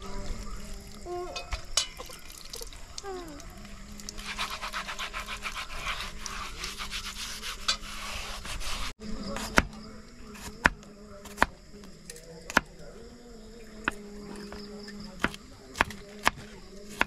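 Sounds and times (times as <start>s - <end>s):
thin stream of water: 0.0s - 9.0s
sponge scrubbing a pot: 3.6s - 9.0s.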